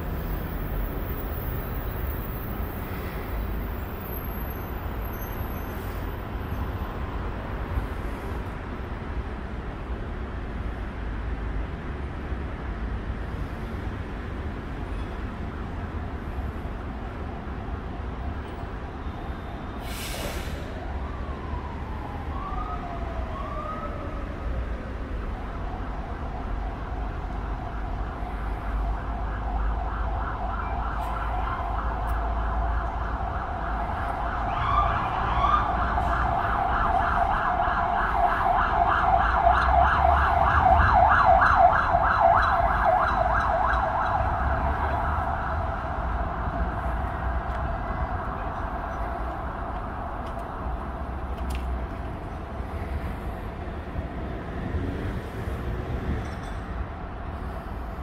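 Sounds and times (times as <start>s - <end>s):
city traffic rumble: 0.0s - 58.0s
short hiss: 19.8s - 20.7s
warbling emergency siren: 20.8s - 51.4s.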